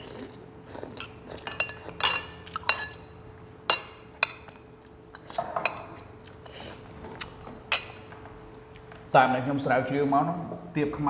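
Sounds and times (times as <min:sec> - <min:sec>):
faint steady hum: 0:00.0 - 0:11.0
spoons clinking on ceramic bowls: 0:01.0 - 0:03.1.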